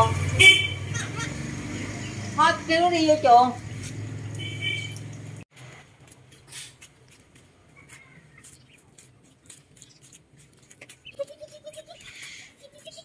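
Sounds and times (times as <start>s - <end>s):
flip-flops slapping on concrete: 5.6s - 13.0s
duckling peeping: 10.8s - 13.0s.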